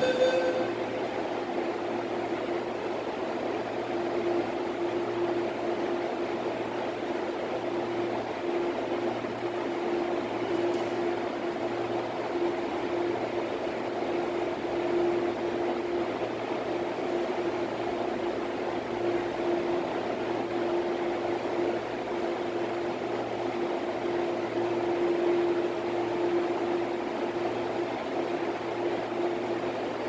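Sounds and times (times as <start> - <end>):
faint high tone: 0.0 - 0.8
ventilation equipment hum: 0.0 - 30.0.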